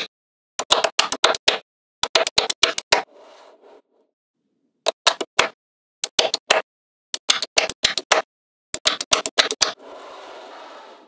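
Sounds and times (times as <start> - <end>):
slab scraping across tabletop: 3.1 - 4.0, 9.8 - 11.0.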